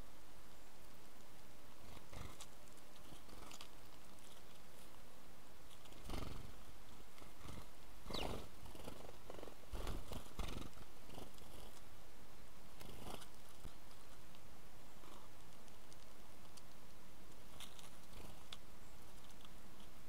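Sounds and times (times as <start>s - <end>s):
fluttering wingbeats: 7.2s - 11.7s
high falling bird chirp: 8.1s - 8.4s.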